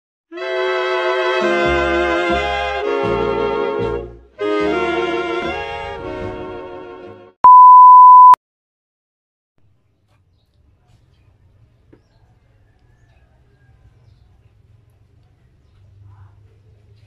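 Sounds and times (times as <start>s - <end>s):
brass intro music: 0.3s - 7.1s
steady test-tone beep: 7.4s - 8.4s.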